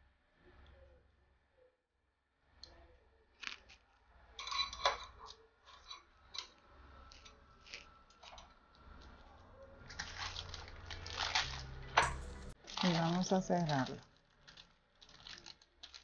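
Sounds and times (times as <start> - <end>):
dough and paper rustling: 6.6 - 16.0.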